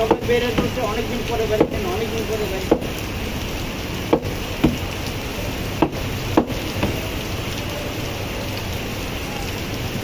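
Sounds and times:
cleaver chopping meat on wood: 0.0s - 0.8s, 1.5s - 1.8s, 2.7s - 2.9s, 4.1s - 4.8s.

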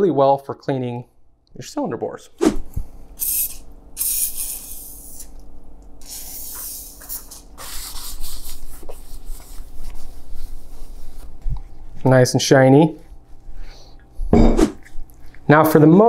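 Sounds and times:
aerosol spray hissing: 3.2s - 5.3s, 6.0s - 8.2s
rubbing and handling noises: 7.2s - 13.7s.

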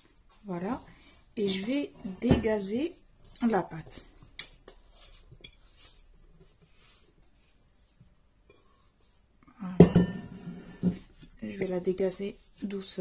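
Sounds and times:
dough scraping in metal bowl: 0.5s - 7.0s.

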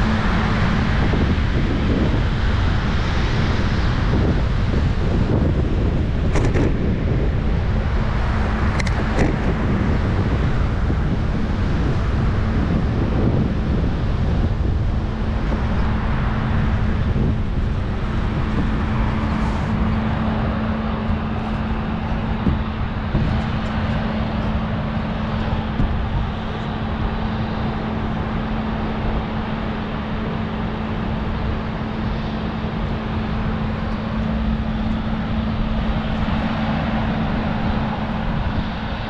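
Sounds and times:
low hum: 0.0s - 39.0s
road and traffic noise: 0.0s - 39.0s
wind buffeting microphone: 0.0s - 39.0s.

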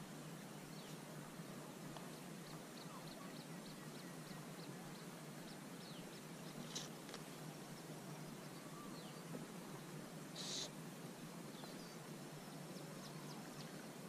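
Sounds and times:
steady background hiss: 0.0s - 14.0s
birds chirping: 0.6s - 10.8s, 11.4s - 14.0s.

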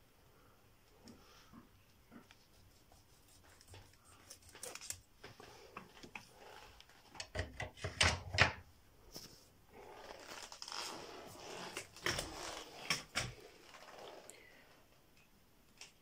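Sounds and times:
rubbing and rustling: 2.1s - 7.1s.

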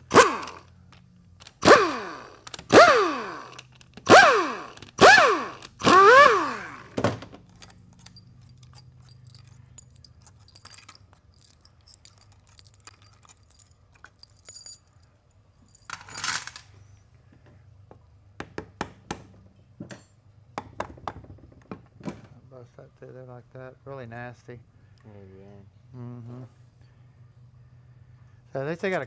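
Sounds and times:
metal parts clinking: 0.0s - 6.0s, 6.6s - 16.8s.

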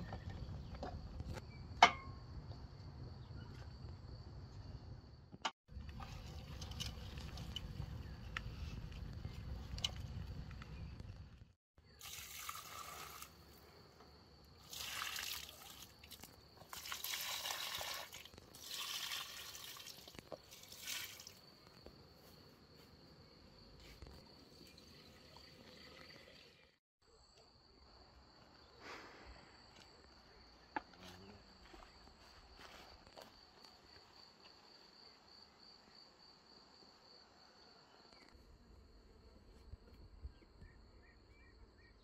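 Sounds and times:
water pouring and trickling: 5.7s - 10.0s, 12.0s - 13.6s, 14.6s - 21.4s, 24.4s - 26.8s.

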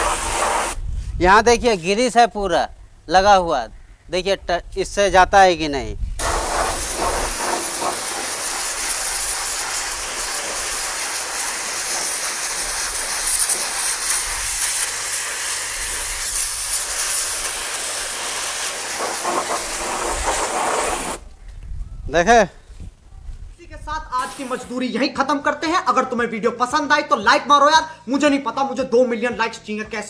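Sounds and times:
pressure washer jet spraying metal: 0.0s - 0.8s, 6.2s - 21.2s, 24.2s - 24.8s.

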